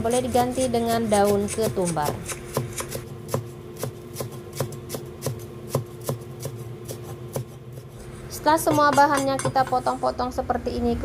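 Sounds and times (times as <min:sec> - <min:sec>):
cleaver chopping on wooden board: 0:00.1 - 0:07.9.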